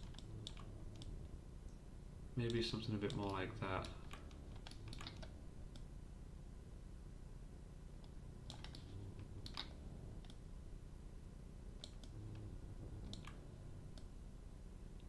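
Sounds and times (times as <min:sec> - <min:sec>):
mouse and keyboard clicks: 0:00.0 - 0:01.2, 0:02.5 - 0:05.9, 0:08.0 - 0:10.4, 0:11.8 - 0:12.2, 0:13.0 - 0:14.1
low steady hum: 0:00.0 - 0:15.0.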